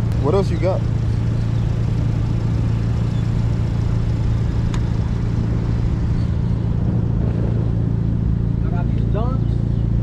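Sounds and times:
vehicle engine idling: 0.0s - 10.0s.

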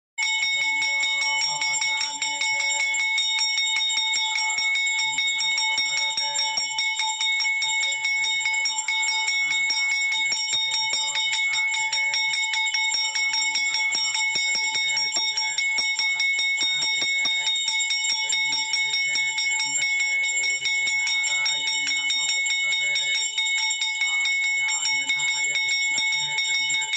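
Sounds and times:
bell ringing rapidly: 0.2s - 26.9s.

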